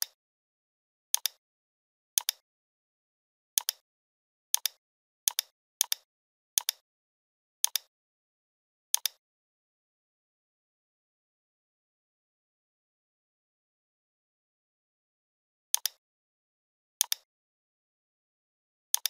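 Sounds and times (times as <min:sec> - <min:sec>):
computer mouse button clicks: 0:02.2 - 0:02.4, 0:07.6 - 0:07.9, 0:09.0 - 0:09.2, 0:17.0 - 0:17.3.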